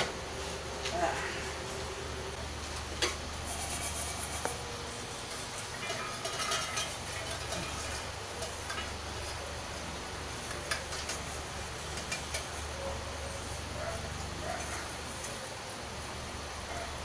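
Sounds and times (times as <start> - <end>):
low hum and hiss: 0.0 - 17.0
popcorn rattling in saucepan: 3.0 - 13.6.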